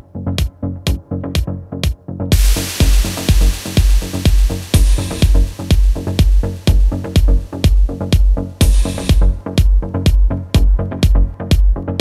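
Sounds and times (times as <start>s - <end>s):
kick drum: 0.0s - 12.0s
bright hissing noise: 2.3s - 8.0s
hi-hats: 2.3s - 10.3s.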